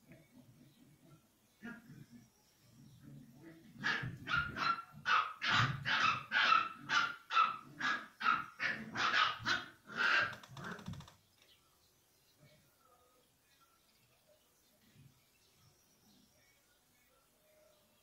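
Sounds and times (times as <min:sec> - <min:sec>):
puppy yapping: 0:03.8 - 0:10.4.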